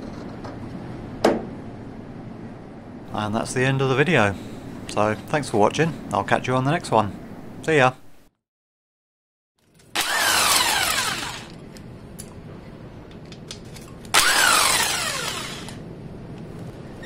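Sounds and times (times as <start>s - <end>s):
power tool whining on bolts: 9.8s - 11.6s, 14.1s - 15.8s.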